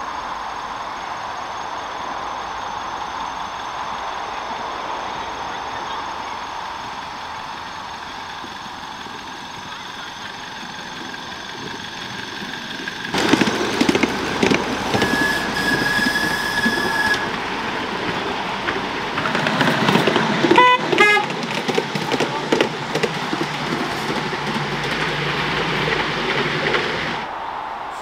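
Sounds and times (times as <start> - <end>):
train wheels clattering on rails: 5.2 - 27.3
short train toots: 14.8 - 17.4, 20.5 - 21.4
train whistle: 14.8 - 17.4, 20.5 - 21.4.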